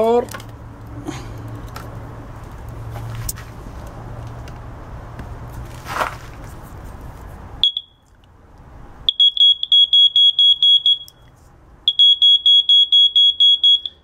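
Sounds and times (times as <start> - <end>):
continuity tester beeping: 9.1 - 11.2, 11.9 - 14.0.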